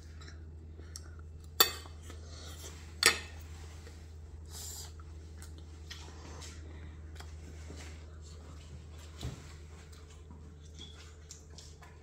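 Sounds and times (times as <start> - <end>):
steady low hum: 0.0 - 12.0
eating noises: 4.4 - 12.0.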